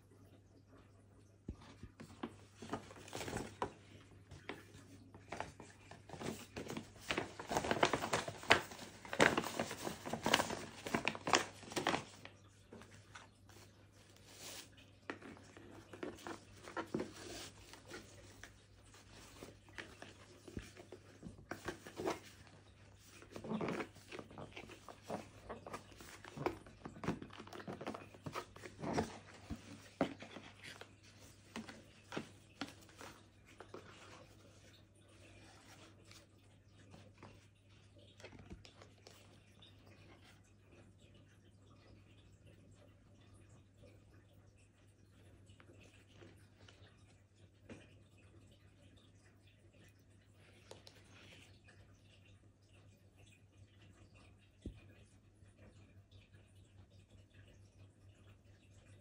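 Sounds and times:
tissue paper crinkling: 2.2s - 34.3s
paper packaging rustling: 2.2s - 34.4s.

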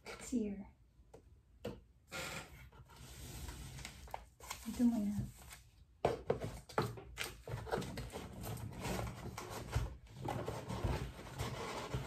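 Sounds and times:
cardboard packaging rustling: 3.0s - 12.0s.

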